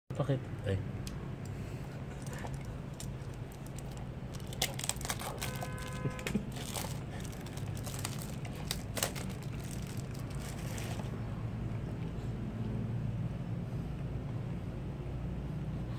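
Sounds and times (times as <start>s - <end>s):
plastic wrap crinkling: 2.5s - 11.2s.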